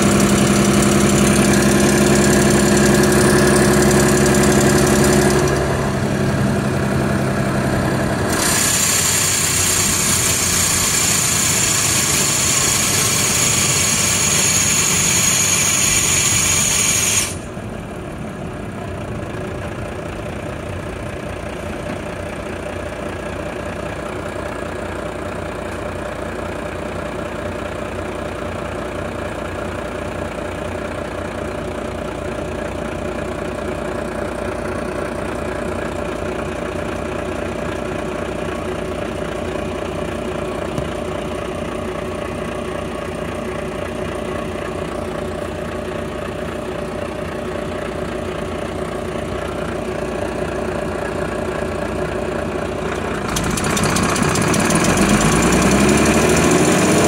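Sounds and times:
diesel engine drone: 0:00.0 - 0:57.0
loud hiss: 0:08.3 - 0:17.5.

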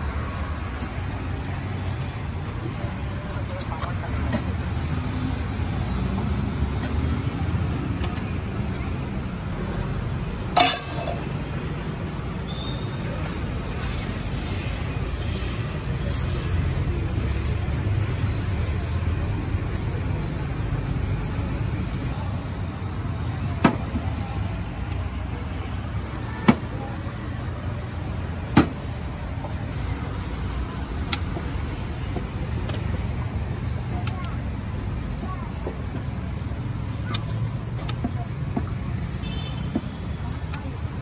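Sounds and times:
road traffic rumble: 0:00.0 - 0:41.0.

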